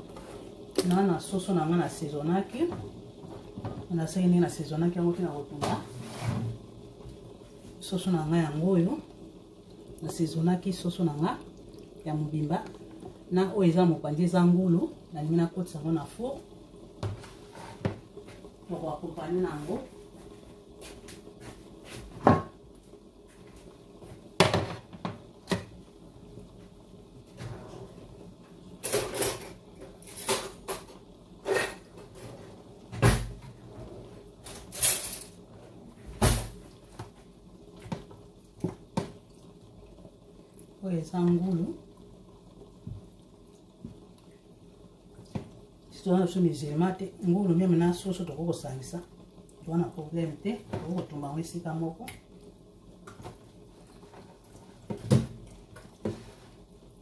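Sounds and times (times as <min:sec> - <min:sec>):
kitchen knocks and clatter: 0:24.4 - 0:25.7.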